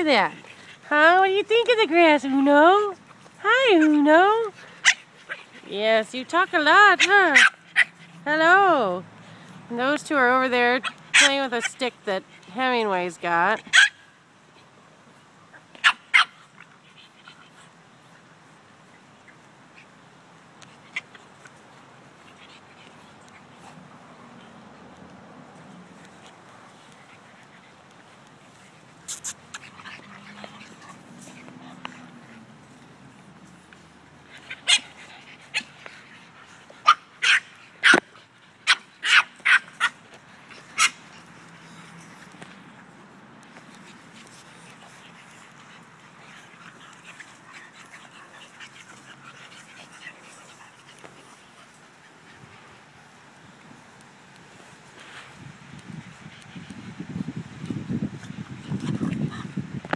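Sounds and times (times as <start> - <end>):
puppies yapping: 6.5 - 8.2, 26.8 - 42.4
puppy yipping: 7.0 - 8.0, 13.7 - 14.1, 15.8 - 16.4, 36.8 - 38.0, 38.7 - 40.0.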